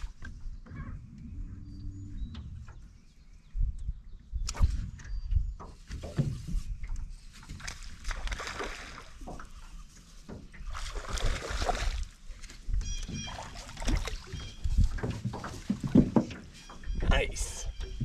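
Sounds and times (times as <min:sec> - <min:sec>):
water splashing and sloshing: 0:04.5 - 0:18.0
low thumps from boat: 0:04.6 - 0:08.0, 0:12.8 - 0:17.1.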